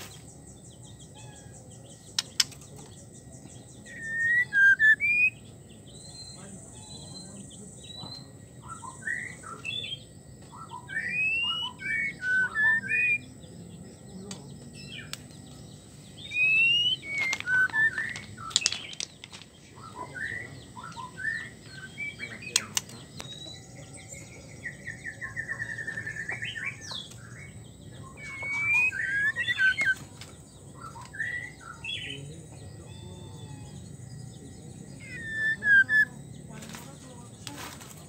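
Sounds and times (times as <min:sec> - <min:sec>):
sharp clicks: 0:02.1 - 0:03.0, 0:22.5 - 0:23.4
bird whistling and trilling: 0:03.8 - 0:05.4, 0:08.1 - 0:13.3, 0:16.2 - 0:19.0, 0:19.8 - 0:23.4, 0:24.1 - 0:30.2, 0:30.8 - 0:32.1, 0:35.0 - 0:36.8.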